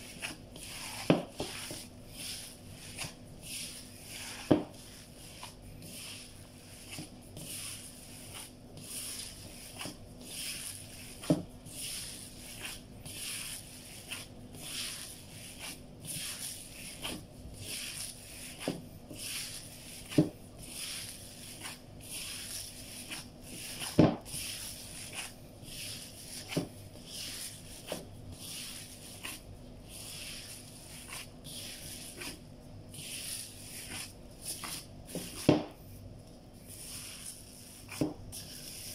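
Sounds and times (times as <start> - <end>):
faint steady hum: 0.0 - 38.9
wet squishing of kneaded meat: 0.0 - 38.9.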